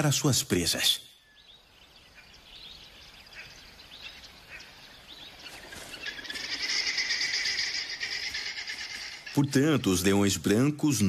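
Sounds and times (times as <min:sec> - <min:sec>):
faint bird chirps: 0:00.0 - 0:10.4
high steady trilling: 0:06.0 - 0:10.3.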